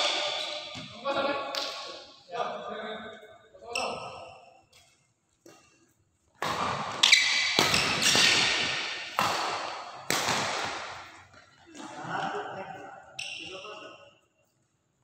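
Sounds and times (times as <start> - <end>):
badminton racket hits echoing: 0.0 - 2.2, 6.4 - 11.4.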